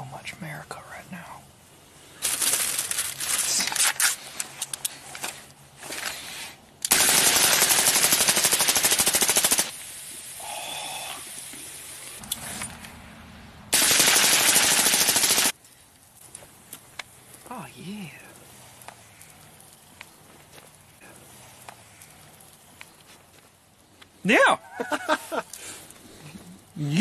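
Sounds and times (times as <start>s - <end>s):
foil crinkling: 2.2s - 6.3s
rifle firing rapid shots: 6.9s - 9.7s, 13.7s - 15.5s.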